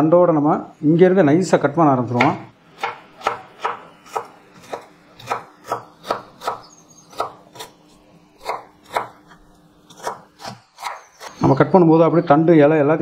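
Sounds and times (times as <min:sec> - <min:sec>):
knife chopping on wooden board: 0:02.2 - 0:07.8, 0:08.4 - 0:11.4.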